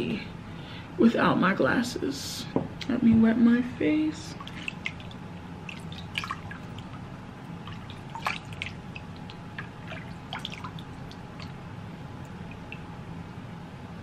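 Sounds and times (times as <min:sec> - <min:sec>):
water splashing in a bowl: 0:04.3 - 0:11.6, 0:12.2 - 0:12.9.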